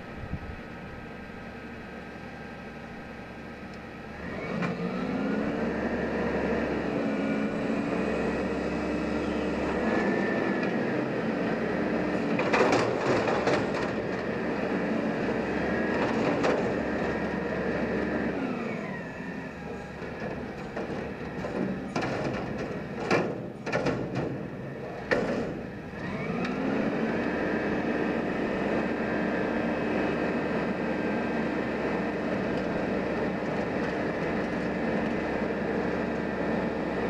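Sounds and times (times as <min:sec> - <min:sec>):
garbage truck engine revving: 0:04.1 - 0:37.0.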